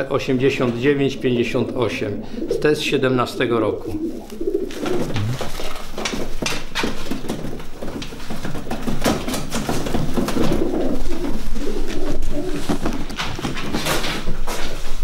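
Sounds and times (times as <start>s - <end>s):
pigeons cooing: 0.0s - 6.3s, 10.0s - 14.2s.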